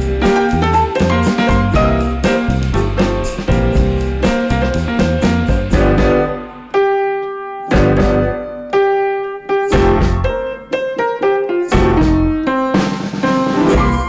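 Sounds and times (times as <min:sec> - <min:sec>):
keyboard background music: 0:00.0 - 0:14.0.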